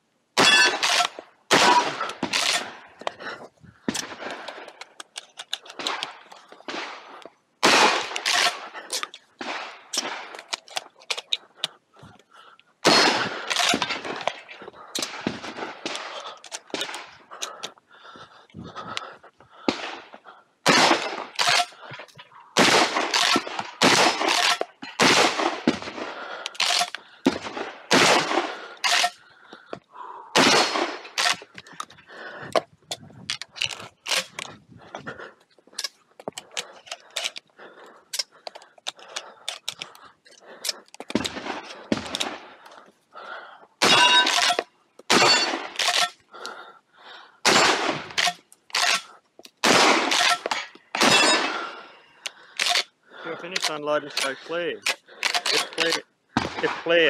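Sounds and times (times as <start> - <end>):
shotgun firing: 0.4 - 2.7, 6.7 - 8.7, 12.8 - 14.2, 20.7 - 21.8, 22.6 - 29.1, 30.4 - 31.4, 45.1 - 46.0, 47.4 - 49.0, 49.6 - 50.4, 51.0 - 51.6, 55.6 - 57.0.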